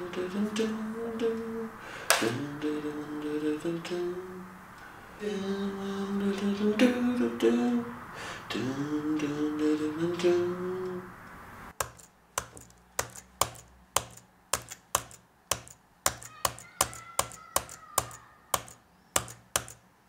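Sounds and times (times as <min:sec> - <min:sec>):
person humming a slow melody: 0:00.0 - 0:04.6, 0:05.2 - 0:11.1
sharp evenly spaced clicks: 0:11.8 - 0:19.9.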